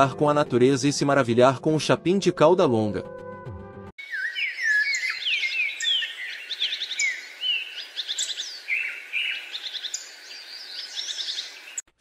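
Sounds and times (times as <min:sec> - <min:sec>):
songbirds singing and chirping: 0:04.0 - 0:11.9.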